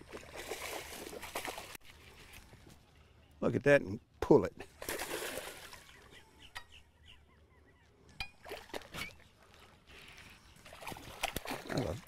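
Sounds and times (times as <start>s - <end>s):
fish splashing at the surface: 4.8s - 5.8s, 10.7s - 12.0s
faint bird calls: 5.6s - 8.2s.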